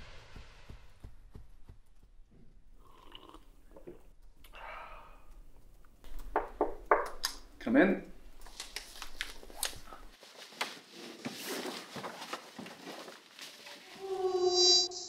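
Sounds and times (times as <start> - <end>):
buzzing tone: 14.1 - 15.0.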